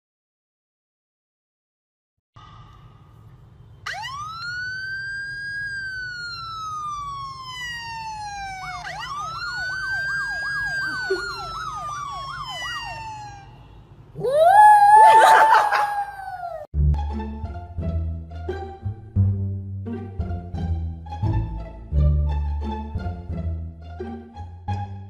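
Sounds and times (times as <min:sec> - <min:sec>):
siren wailing: 0:03.8 - 0:16.7
siren fast yelp: 0:03.9 - 0:16.7.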